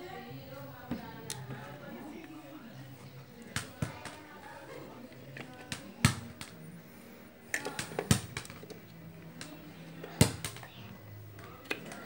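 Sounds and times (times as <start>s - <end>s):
plastic clicks and taps: 7.5s - 8.7s.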